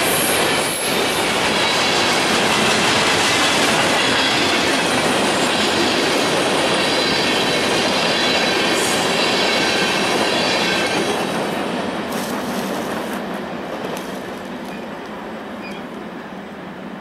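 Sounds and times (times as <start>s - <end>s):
train wheels clattering on rails: 0.0s - 16.1s
faint high wheel squeal: 15.6s - 15.9s.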